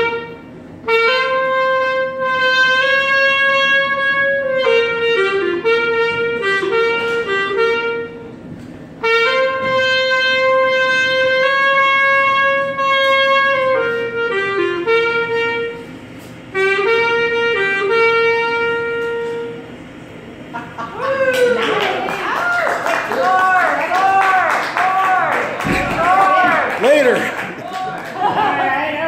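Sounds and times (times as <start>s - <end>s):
solo clarinet melody: 0.0s - 19.9s.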